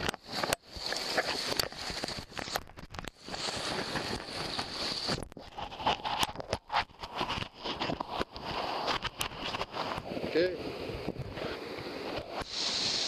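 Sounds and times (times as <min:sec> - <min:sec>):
clothing rubbing against microphone: 0:00.0 - 0:13.0
rushing whitewater: 0:07.1 - 0:13.0.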